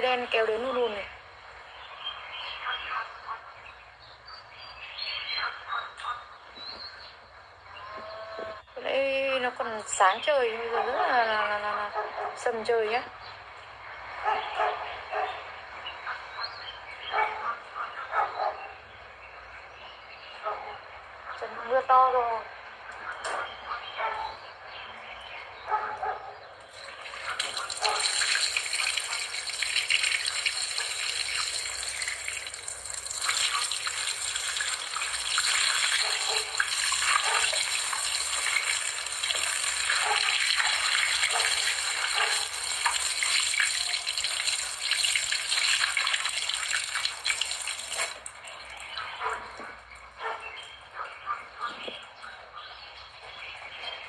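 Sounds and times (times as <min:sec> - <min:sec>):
heavy rain on tiles: 0:26.8 - 0:48.8.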